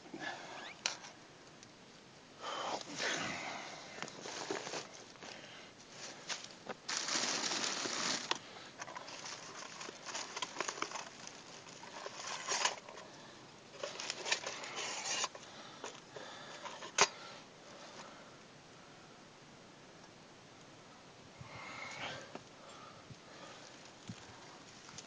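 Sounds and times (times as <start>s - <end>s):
rustling in bursts: 5.9s - 13.0s.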